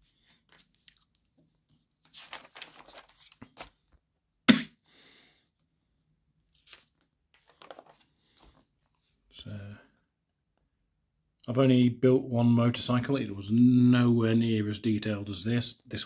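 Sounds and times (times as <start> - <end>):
magazine pages rustling: 0.0 - 4.1, 6.4 - 9.2.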